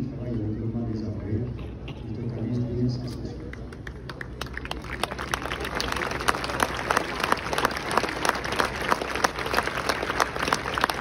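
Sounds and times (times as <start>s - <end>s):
crowd applauding: 3.5s - 11.0s.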